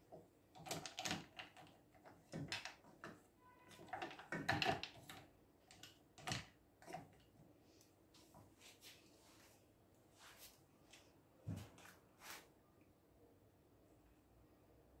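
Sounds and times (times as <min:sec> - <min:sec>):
spoon stirring chocolate in saucepan: 0:00.0 - 0:07.4.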